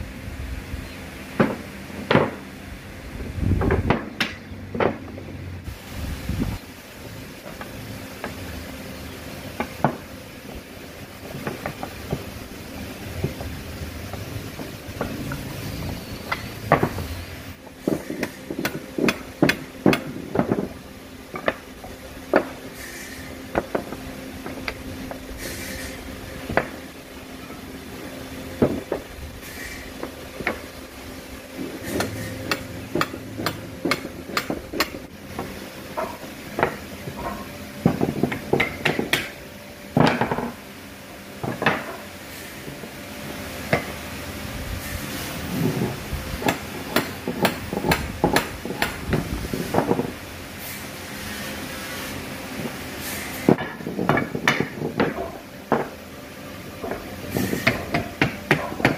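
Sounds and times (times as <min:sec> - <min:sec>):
wooden blocks knocking: 0:01.4 - 0:02.4, 0:03.6 - 0:05.2, 0:16.2 - 0:17.0, 0:32.0 - 0:39.3, 0:40.0 - 0:40.6, 0:41.4 - 0:42.0, 0:53.5 - 0:56.0.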